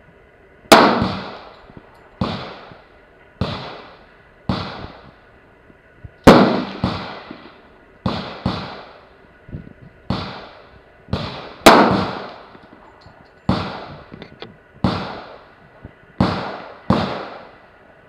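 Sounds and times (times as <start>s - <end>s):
pistol shots: 0.7s - 1.5s, 2.2s - 2.8s, 3.4s - 5.0s, 6.2s - 9.0s, 10.1s - 12.5s, 13.5s - 14.0s, 14.8s - 15.5s, 16.2s - 17.5s.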